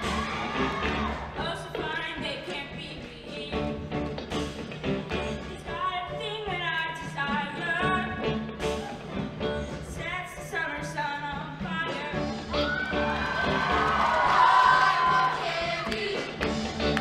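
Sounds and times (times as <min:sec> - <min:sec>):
live band playing a beat: 0:00.0 - 0:17.0
choir singing: 0:14.4 - 0:16.5.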